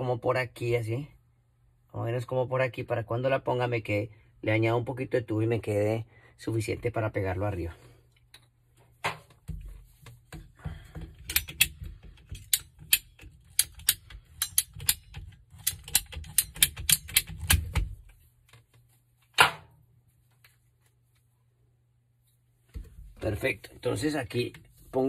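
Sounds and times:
pipe snapping: 0:08.3 - 0:18.1
pipe cutter ratcheting clicks: 0:11.2 - 0:17.8.

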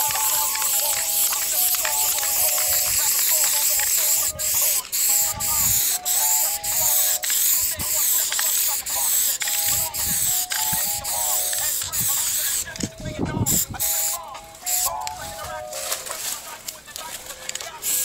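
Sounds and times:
spray paint can hissing: 0:00.0 - 0:18.0.

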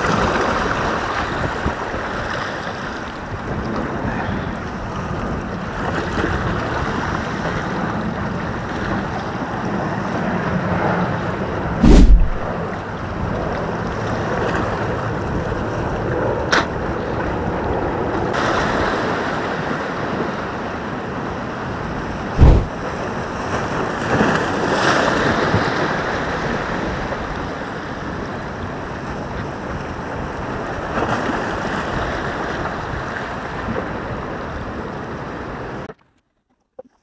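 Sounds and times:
wind buffeting microphone: 0:03.2 - 0:12.7, 0:22.0 - 0:23.0
loud low thump: 0:11.8 - 0:12.5, 0:22.4 - 0:22.7
waves washing against rocks: 0:11.8 - 0:12.5, 0:18.4 - 0:28.3.

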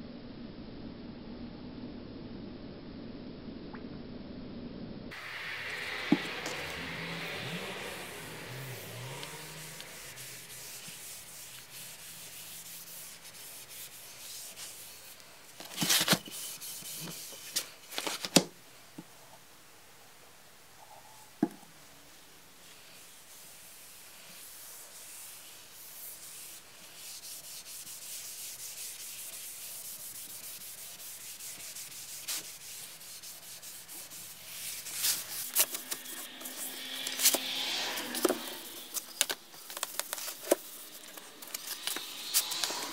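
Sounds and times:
cloth scrubbing wood: 0:05.2 - 0:17.7, 0:22.8 - 0:42.9.

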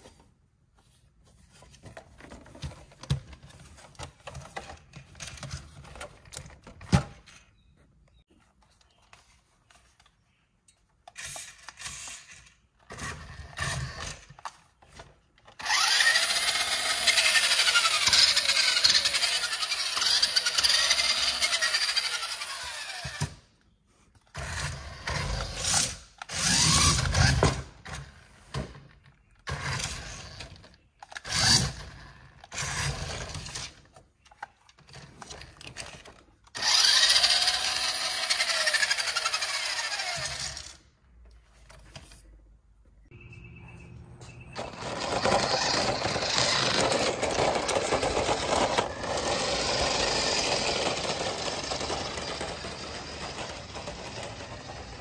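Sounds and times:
rc truck electric motor whining: 0:15.5 - 0:23.4, 0:24.3 - 0:27.7, 0:29.5 - 0:33.9, 0:36.5 - 0:40.8, 0:44.6 - 0:55.0.

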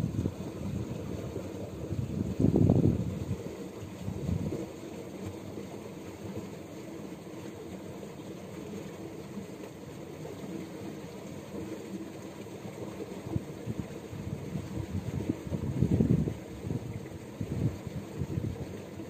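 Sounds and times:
wind buffeting microphone: 0:01.8 - 0:04.6, 0:13.7 - 0:18.8.

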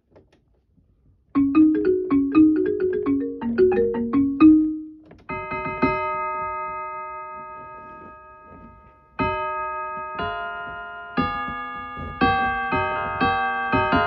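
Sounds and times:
electric keyboard notes: 0:01.4 - 0:06.0.

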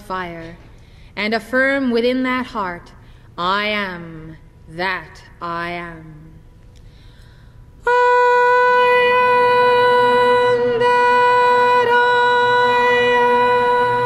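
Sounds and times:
mantra intoned on one note: 0:07.8 - 0:14.0.

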